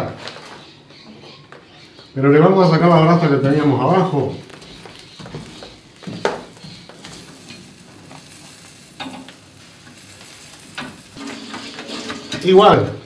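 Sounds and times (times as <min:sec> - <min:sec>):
lamb sizzling over embers: 0:03.0 - 0:13.0
metal tool scraping grill: 0:10.7 - 0:12.8.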